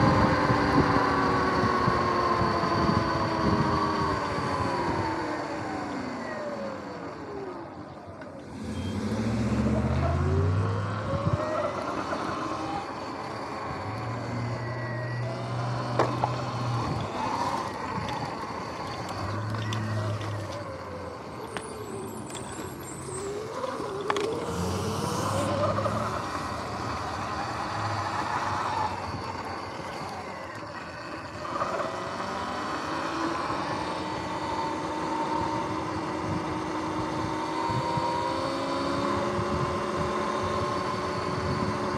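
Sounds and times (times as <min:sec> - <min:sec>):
electric motor whine: 0:00.0 - 0:41.9
tyre and wind noise: 0:08.6 - 0:41.9.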